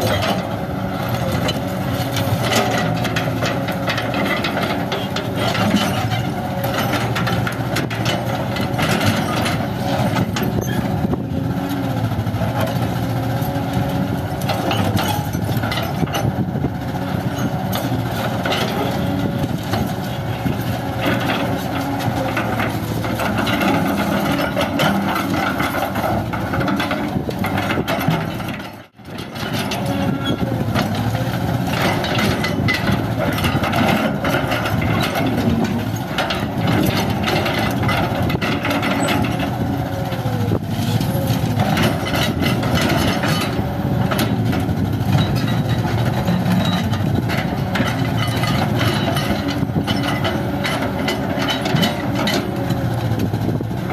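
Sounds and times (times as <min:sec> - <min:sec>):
excavator diesel engine running: 0:00.0 - 0:53.9.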